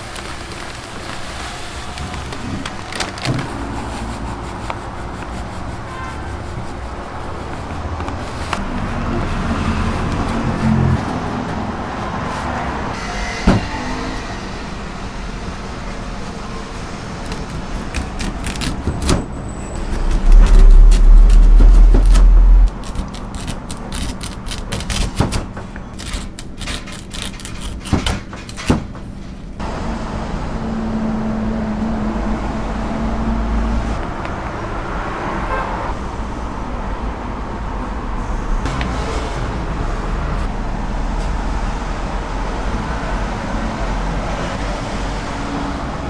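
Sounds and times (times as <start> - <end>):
loud low rumble: 19.7 - 22.8.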